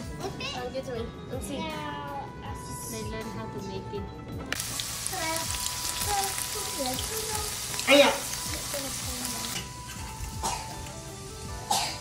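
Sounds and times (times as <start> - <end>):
background music: 0.0 - 12.0
food sizzling in hot oil: 4.5 - 12.0.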